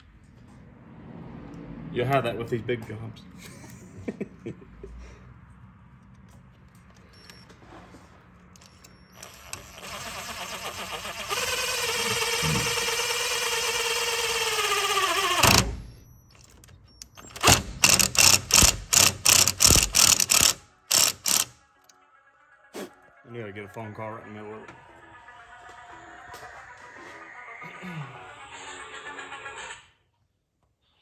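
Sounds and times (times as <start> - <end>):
cordless driver motor whining: 8.6 - 21.5.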